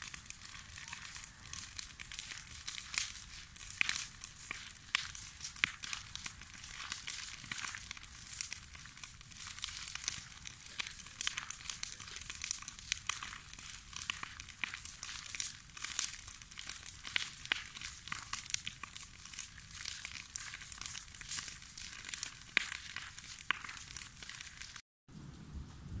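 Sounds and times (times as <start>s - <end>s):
bonfire wood crackling and popping: 0.0s - 26.0s
low fire rumble: 0.0s - 26.0s.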